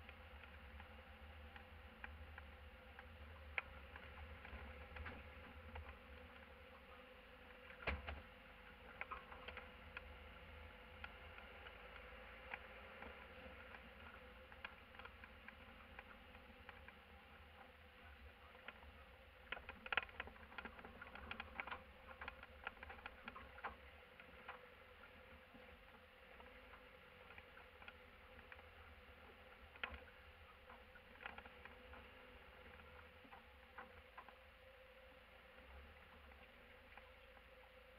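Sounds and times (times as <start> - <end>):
light clicks and rattles: 0.0 - 37.9.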